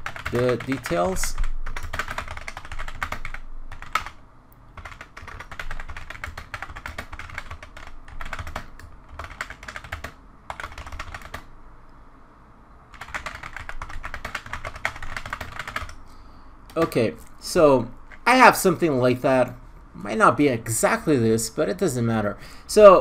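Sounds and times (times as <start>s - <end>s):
typing on computer keyboard: 0.0s - 4.2s, 4.8s - 11.5s, 12.9s - 16.0s.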